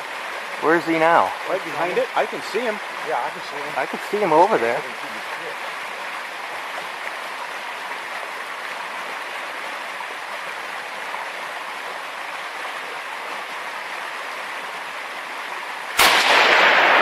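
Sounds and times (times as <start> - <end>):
river rushing over stones: 0.0 - 17.0
man speaking: 0.6 - 5.6
rifle shot with echo: 16.0 - 17.0.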